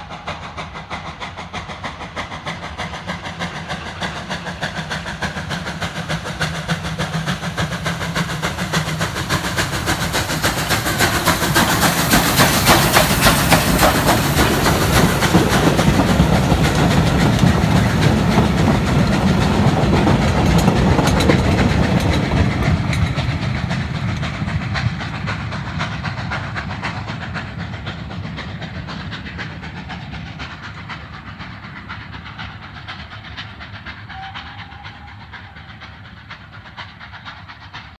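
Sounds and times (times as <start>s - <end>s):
steam hissing: 0.0s - 38.0s
train wheels clicking over rail joints: 0.0s - 38.0s
faint train whistle: 34.0s - 36.2s.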